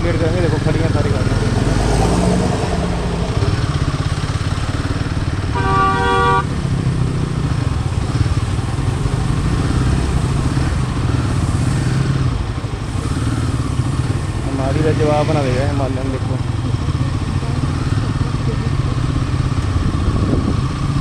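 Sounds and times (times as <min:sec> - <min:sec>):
motorcycle engine running: 0:00.0 - 0:21.0
vehicle horn: 0:05.5 - 0:06.6.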